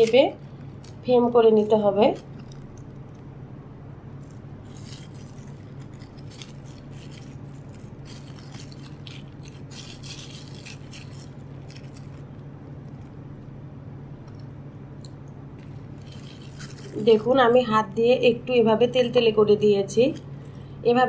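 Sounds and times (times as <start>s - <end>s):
plastic film crinkling: 0.0s - 3.3s, 4.2s - 13.2s, 15.6s - 17.9s, 19.5s - 20.6s
low hum: 0.0s - 21.0s.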